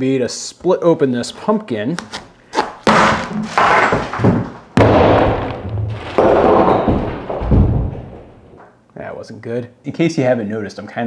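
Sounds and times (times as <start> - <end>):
low thud: 4.1 - 8.6.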